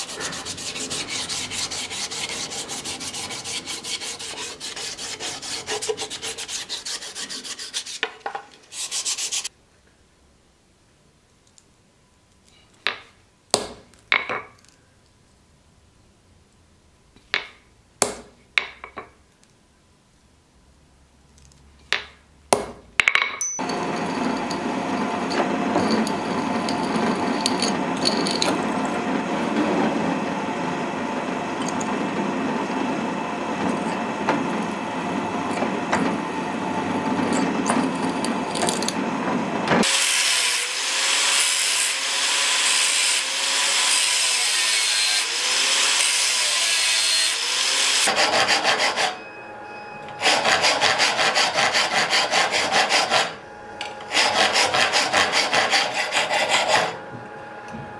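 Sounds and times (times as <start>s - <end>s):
hand saw cutting metal: 0.0s - 8.1s, 23.7s - 29.0s, 39.8s - 49.2s, 50.2s - 57.0s.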